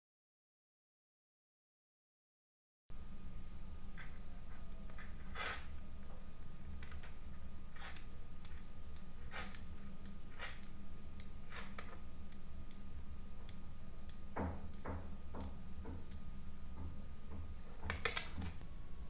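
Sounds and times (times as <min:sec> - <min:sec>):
steady low hum: 0:02.9 - 0:19.0
magnetic balls clicking together: 0:06.8 - 0:16.3.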